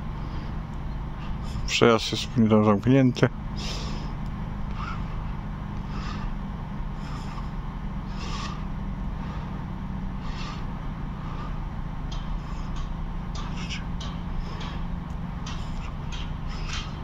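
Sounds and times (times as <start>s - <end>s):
steady low rumble: 0.0s - 17.0s
crows cawing: 4.7s - 17.0s.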